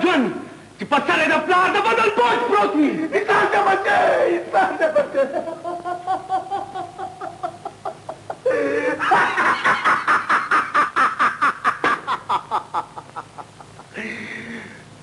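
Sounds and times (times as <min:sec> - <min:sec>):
man laughing: 0:04.7 - 0:14.4.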